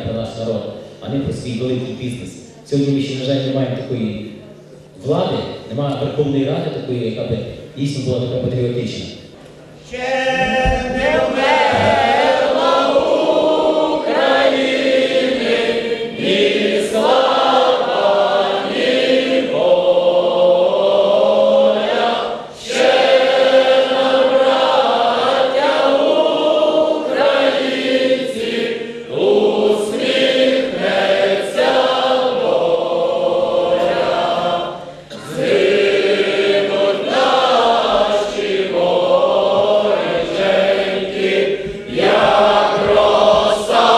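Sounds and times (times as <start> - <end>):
choir singing: 9.9 - 43.9.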